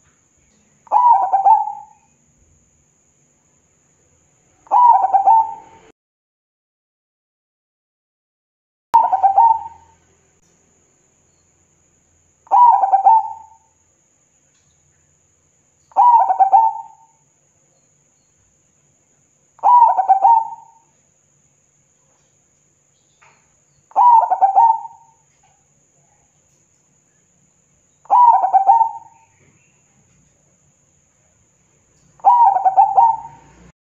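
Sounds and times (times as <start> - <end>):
dove cooing: 0.9 - 2.0, 4.6 - 5.9, 9.0 - 10.0, 12.5 - 13.6, 15.9 - 17.1, 19.6 - 20.9, 23.9 - 25.2, 28.1 - 29.5, 32.2 - 33.7.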